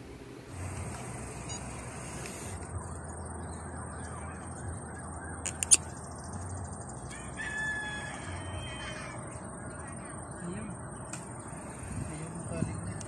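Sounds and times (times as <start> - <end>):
steady background noise: 0.0 - 13.0
sharp click: 5.4 - 5.8.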